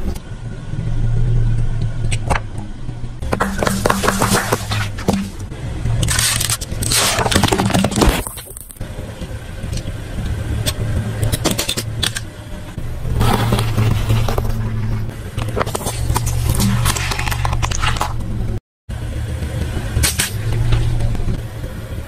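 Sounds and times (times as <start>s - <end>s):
car engine idling: 0.0s - 22.0s
tyre crushing cans and plastic: 3.2s - 8.8s, 13.0s - 18.2s.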